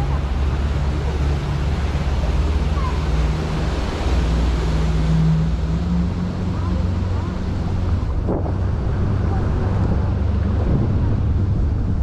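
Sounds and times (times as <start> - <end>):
boat engine humming: 0.0 - 12.0
water washing along hull: 0.0 - 12.0
wind buffeting microphone: 5.5 - 12.0.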